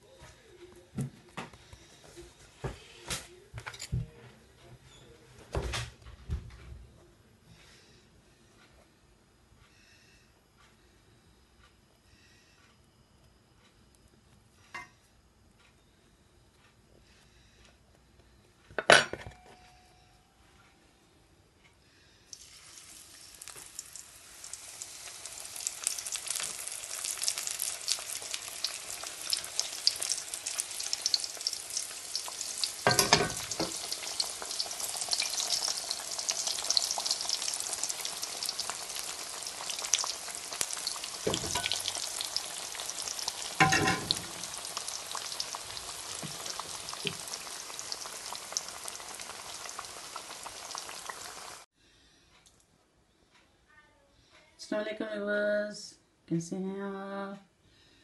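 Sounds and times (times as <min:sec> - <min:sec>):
deep-frying sizzle: 0:22.3 - 0:51.7.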